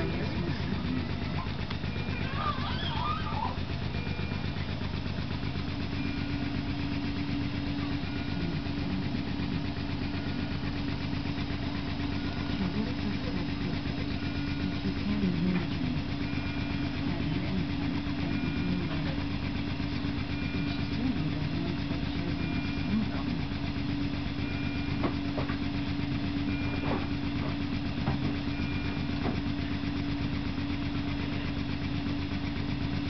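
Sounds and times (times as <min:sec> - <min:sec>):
equipment hum with low pulsing: 0:00.0 - 0:33.0
two-tone electronic beep: 0:20.4 - 0:23.2.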